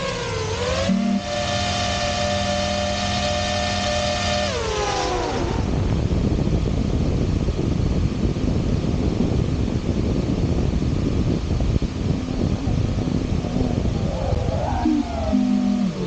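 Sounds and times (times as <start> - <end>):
drone motors whining: 0.0 - 6.2, 11.2 - 16.0
wind rushing: 5.0 - 16.0.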